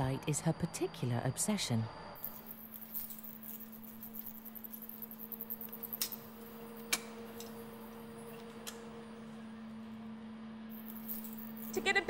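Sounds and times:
lab equipment hum: 0:00.0 - 0:12.0
wire-mesh cage clicks and rustles: 0:05.4 - 0:07.6.

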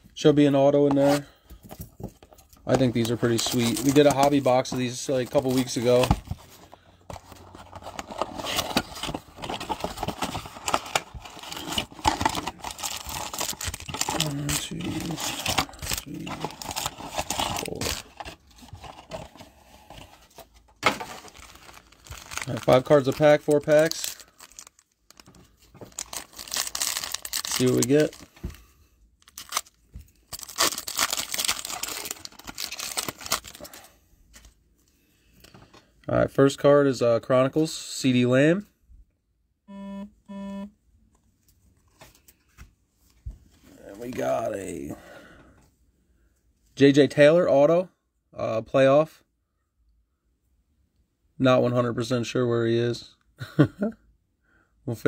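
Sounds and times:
cardboard rustling: 0:02.0 - 0:28.6
plastic shrink-wrap crinkling: 0:07.4 - 0:19.2, 0:21.0 - 0:28.3, 0:29.2 - 0:33.8.

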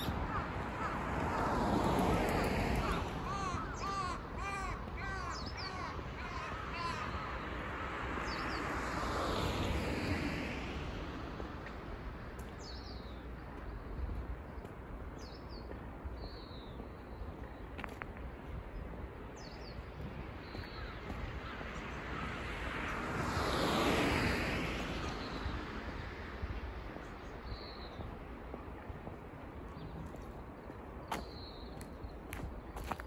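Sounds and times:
crow cawing: 0:00.0 - 0:01.3, 0:02.8 - 0:07.4
small birds chirping: 0:12.4 - 0:22.0.

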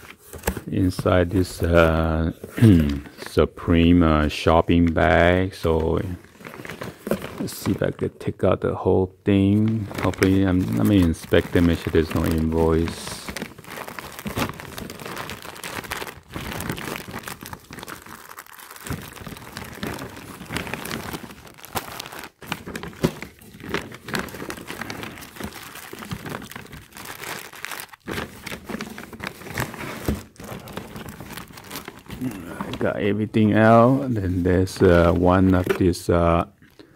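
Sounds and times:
tissue paper and plastic bag crinkling: 0:05.0 - 0:07.9, 0:09.4 - 0:36.0.

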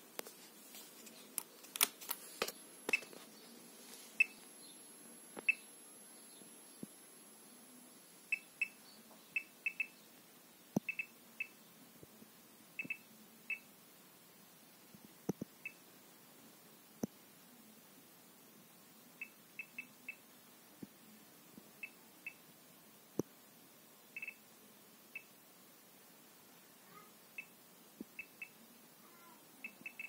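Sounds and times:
geiger counter beeping: 0:09.4 - 0:10.0, 0:10.8 - 0:11.6, 0:24.2 - 0:24.4, 0:28.2 - 0:28.6, 0:29.6 - 0:30.0.

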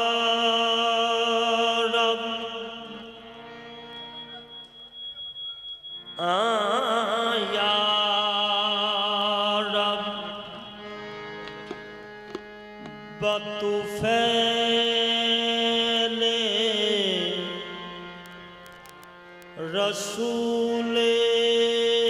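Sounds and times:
ornamented singing voice: 0:00.0 - 0:03.6, 0:06.2 - 0:10.9, 0:13.2 - 0:18.5, 0:19.4 - 0:22.0
harmonium: 0:00.0 - 0:05.0, 0:06.0 - 0:22.0.

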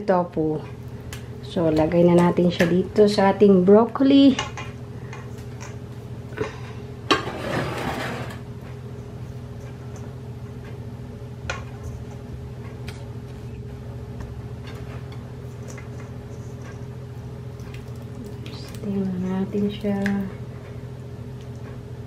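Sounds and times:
steady low hum: 0:00.0 - 0:22.0
spatula scraping a metal bowl: 0:07.2 - 0:08.4.

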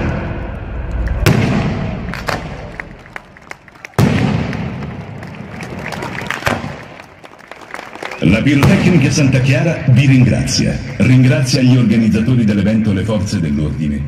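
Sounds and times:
firework bang: 0:00.0 - 0:03.0, 0:03.9 - 0:05.2
heavy firework boom: 0:00.0 - 0:03.0, 0:03.9 - 0:05.3
fireworks crackling and popping: 0:01.1 - 0:09.2.

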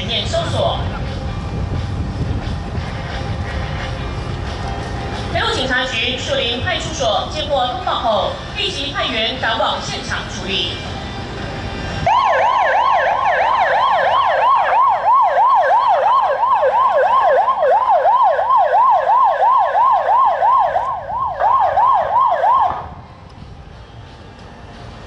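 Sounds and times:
police siren wailing: 0:11.9 - 0:23.3.

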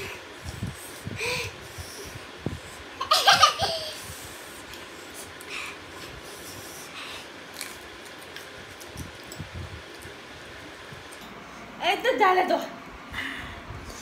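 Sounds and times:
sniffs and sharp breaths: 0:00.0 - 0:02.9, 0:04.0 - 0:07.4
eating noises: 0:04.3 - 0:10.2.

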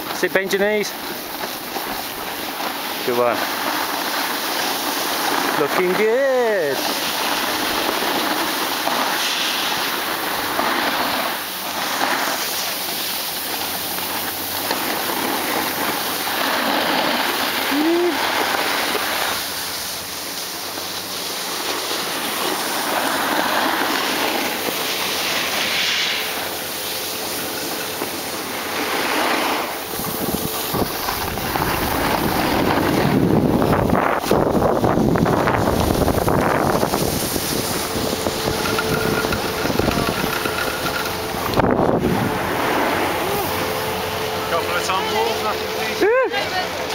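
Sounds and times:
snowboard scraping over snow: 0:00.0 - 0:46.9
wind buffeting microphone: 0:29.7 - 0:44.3.

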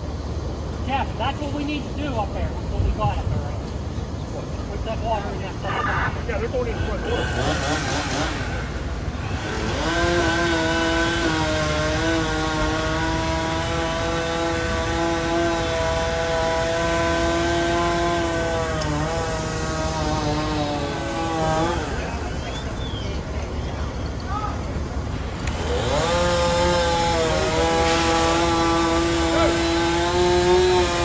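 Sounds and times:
power saw revving: 0:06.7 - 0:22.4, 0:25.2 - 0:31.0.

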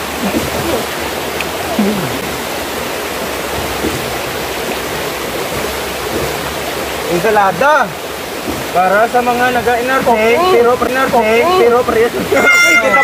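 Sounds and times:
flowing water rushing: 0:00.0 - 0:13.0.

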